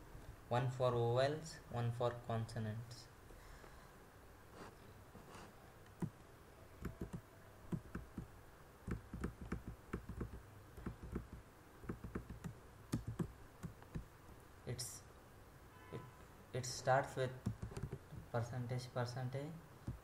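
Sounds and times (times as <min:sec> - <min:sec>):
keyboard keys clicking: 0:06.8 - 0:08.3, 0:08.9 - 0:14.0, 0:17.4 - 0:18.2.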